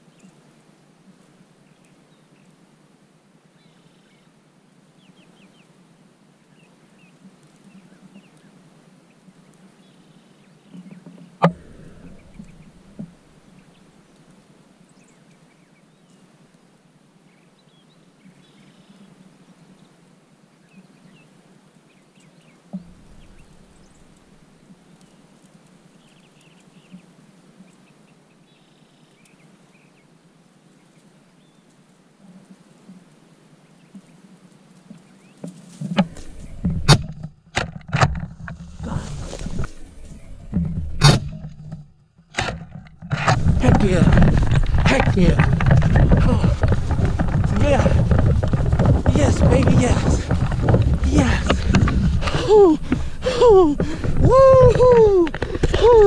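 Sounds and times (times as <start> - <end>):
faint short bird calls: 18.3 - 19.1
small knocks: 35.4 - 56.0.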